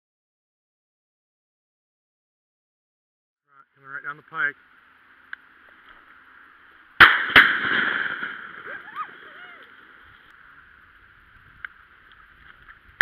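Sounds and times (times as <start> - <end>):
shotgun shots with echo: 7.0 - 8.7.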